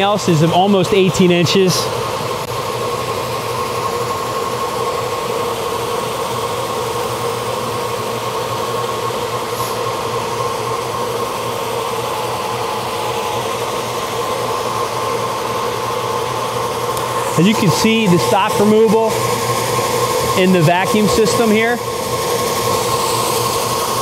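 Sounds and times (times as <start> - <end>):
floor sander motor hum: 0.0 - 24.0.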